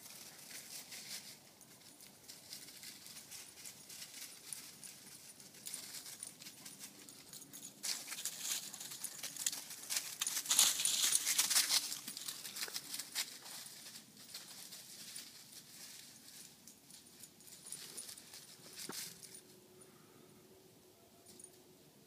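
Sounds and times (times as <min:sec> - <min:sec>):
footsteps crunching through dry leaves: 0:07.9 - 0:16.6.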